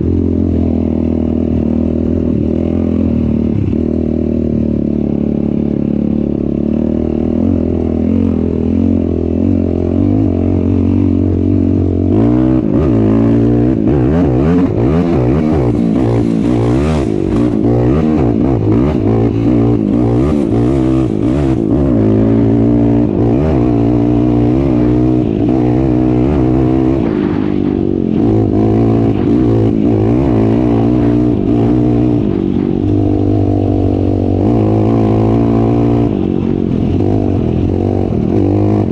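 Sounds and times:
off-road vehicle engine revving: 0:00.0 - 0:38.9.

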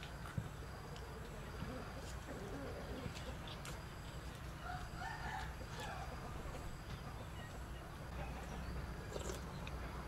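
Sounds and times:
rooster crowing faintly: 0:04.6 - 0:06.2.

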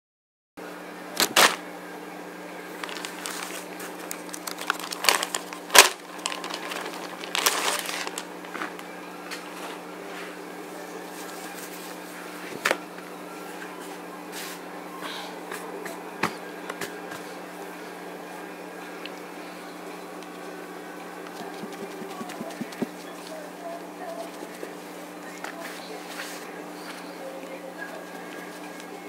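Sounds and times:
steady low hum: 0:00.6 - 0:29.0
plastic bag crinkling: 0:02.7 - 0:08.8.

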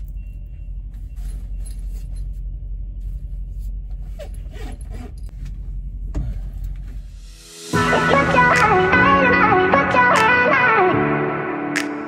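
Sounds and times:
truck engine rumble: 0:00.0 - 0:07.3.

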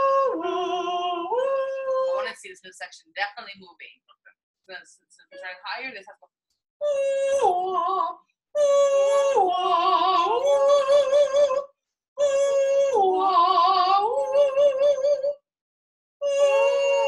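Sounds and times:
person singing vocal exercise: 0:00.0 - 0:02.4, 0:06.8 - 0:15.4, 0:16.2 - 0:17.0.

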